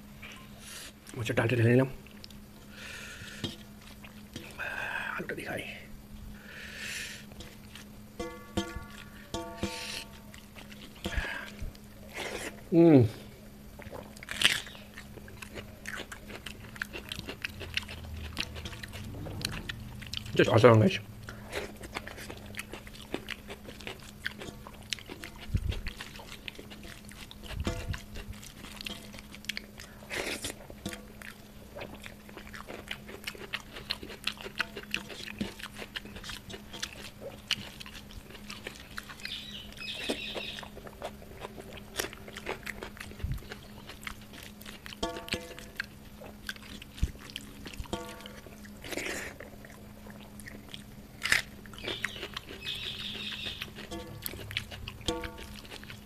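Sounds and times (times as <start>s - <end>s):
wet chewing and lip-smacking: 3.6s - 4.6s, 8.7s - 12.7s, 13.8s - 20.6s, 21.2s - 56.0s
fingers squishing food: 21.2s - 56.0s.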